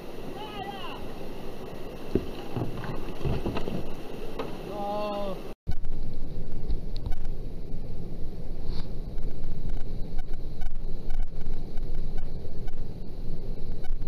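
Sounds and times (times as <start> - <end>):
person calling: 0.3 - 1.1, 4.7 - 5.5.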